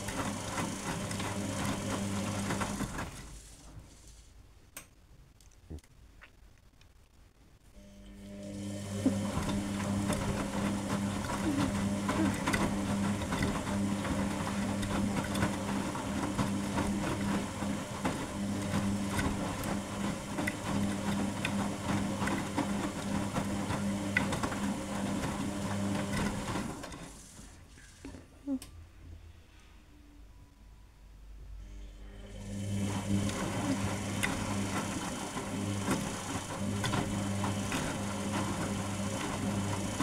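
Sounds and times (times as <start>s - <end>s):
wet laundry tumbling and knocking: 0.0s - 3.2s, 9.0s - 26.9s, 32.9s - 40.0s
washing machine motor hum: 0.0s - 4.3s, 7.8s - 28.2s, 31.6s - 40.0s.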